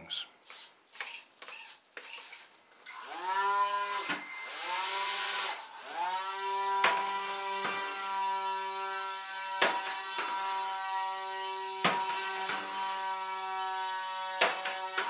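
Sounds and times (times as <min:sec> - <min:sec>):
electric motor whine: 0:02.9 - 0:15.0.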